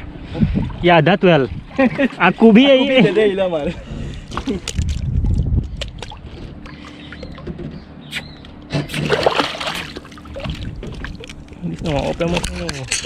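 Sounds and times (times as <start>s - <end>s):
fish splashing in water: 8.8s - 11.4s
low rumble: 9.8s - 12.3s.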